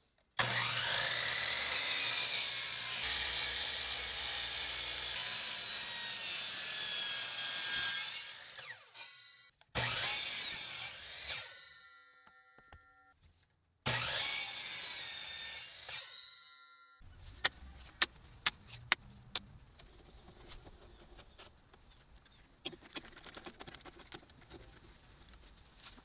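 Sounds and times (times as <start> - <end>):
miter saw cutting wood: 0.4 - 9.1, 9.8 - 11.6, 13.9 - 16.1.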